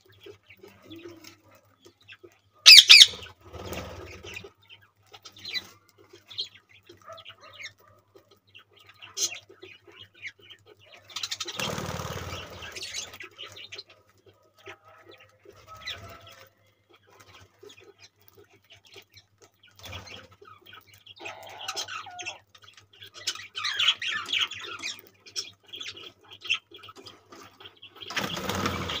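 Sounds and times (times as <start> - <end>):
budgerigars chirping: 2.1 - 8.0, 8.6 - 19.1, 19.8 - 29.0
wings flapping: 2.9 - 4.5, 11.2 - 13.5, 27.3 - 29.0.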